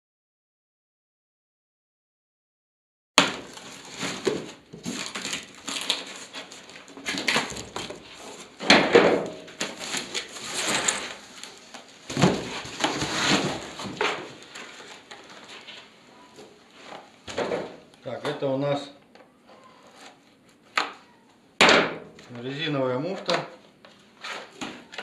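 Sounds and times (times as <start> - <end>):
packaging crackling and rustling: 3.4 - 8.6, 9.5 - 15.9.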